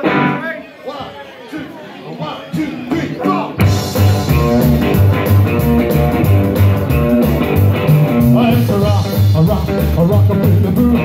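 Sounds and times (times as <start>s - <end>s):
electric guitar: 0.0s - 0.4s, 3.6s - 11.0s
drum kit boogie beat: 2.9s - 11.0s
upright double bass: 3.6s - 11.0s.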